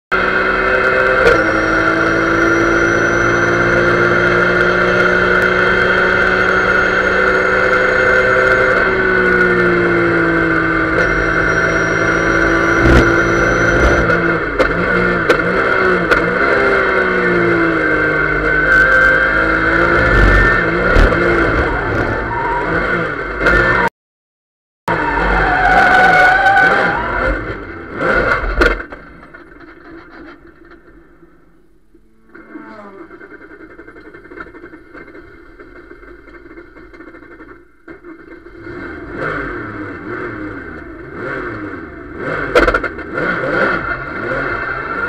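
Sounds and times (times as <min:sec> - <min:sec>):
race car engine at high revs: 0:00.1 - 0:23.9, 0:24.9 - 0:29.0, 0:38.0 - 0:45.0
high whine: 0:10.5 - 0:14.5, 0:18.5 - 0:22.9.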